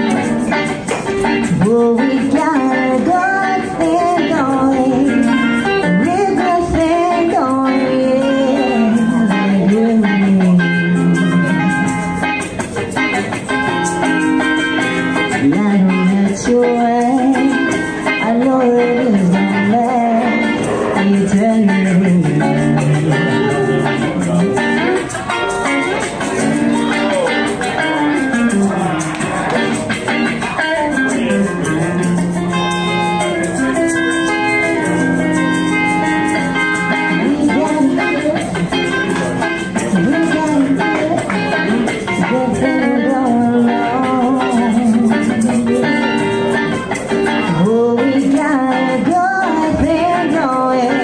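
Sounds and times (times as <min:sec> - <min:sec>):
guitar playing chords: 0:00.0 - 0:51.0
woman singing: 0:01.2 - 0:12.0, 0:15.2 - 0:24.0, 0:30.5 - 0:32.7, 0:34.0 - 0:46.2, 0:47.2 - 0:51.0.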